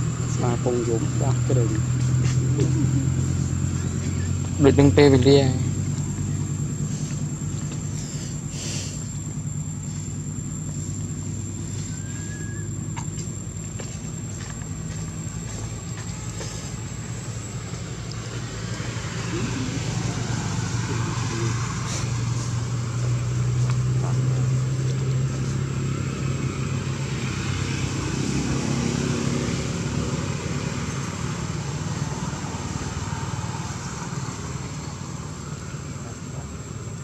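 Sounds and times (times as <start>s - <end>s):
faint high-pitched whine: 0.0s - 22.4s
vehicle engine humming: 0.0s - 37.0s.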